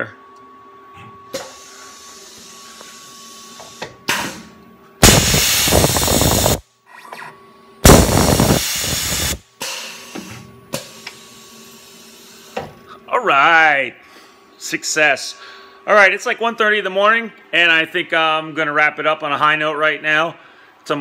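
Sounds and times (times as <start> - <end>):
faint machine hum: 0.0 - 21.0
compressed air hissing: 5.0 - 6.6, 7.8 - 10.1.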